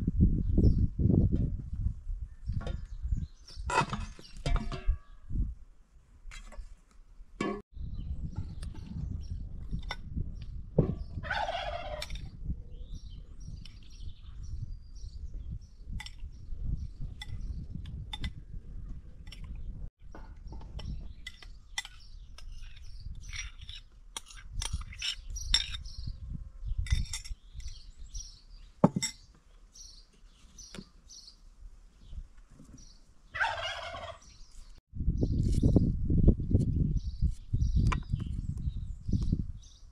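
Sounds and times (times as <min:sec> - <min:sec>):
wind rumble on microphone: 0:00.0 - 0:05.7, 0:07.7 - 0:28.4, 0:32.0 - 0:39.9
small birds chirping: 0:02.2 - 0:05.3, 0:11.9 - 0:39.9
fowl gobbling call: 0:11.2 - 0:12.1, 0:33.4 - 0:34.2.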